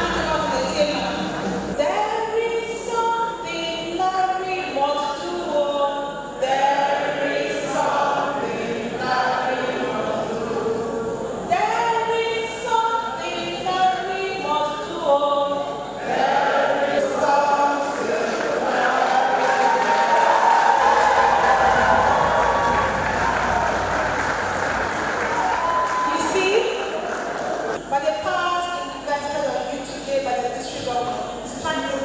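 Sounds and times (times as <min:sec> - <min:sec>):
choir singing long notes: 0:06.4 - 0:11.5, 0:16.0 - 0:26.0.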